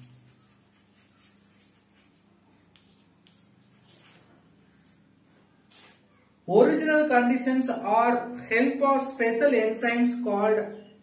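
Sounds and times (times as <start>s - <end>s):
chalk scratching on blackboard: 0.0s - 5.0s, 5.7s - 6.0s
chalk tapping: 0.0s - 5.0s.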